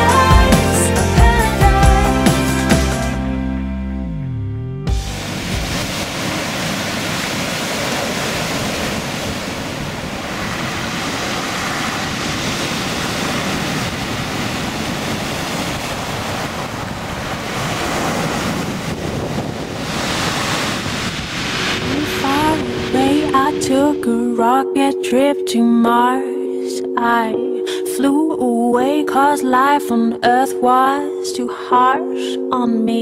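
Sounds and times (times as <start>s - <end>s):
waves breaking on a beach: 5.0s - 24.1s
wind on microphone: 5.1s - 24.5s.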